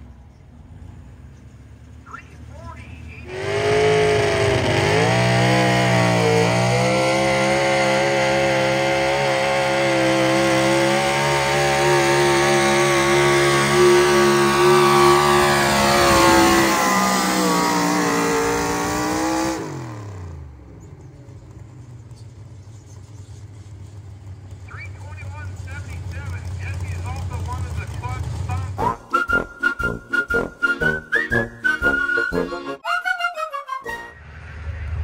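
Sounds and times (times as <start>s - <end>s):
engine running at high revs: 3.3s - 22.9s, 23.6s - 29.1s.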